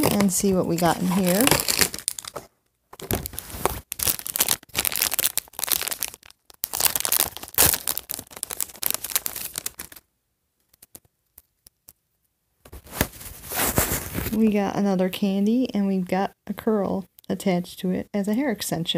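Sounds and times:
plastic packet crinkling: 0:00.0 - 0:10.0, 0:10.6 - 0:11.6.

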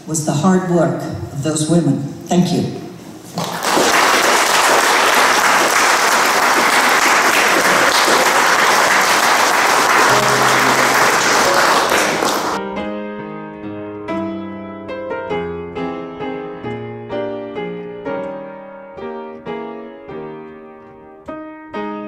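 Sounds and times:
audience applauding: 0:03.4 - 0:12.6
solo piano music: 0:09.9 - 0:22.0.

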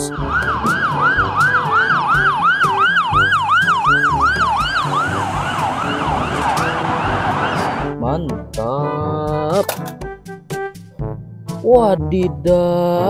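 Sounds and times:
ambulance siren yelping: 0:00.0 - 0:08.0
background music: 0:00.0 - 0:13.0.

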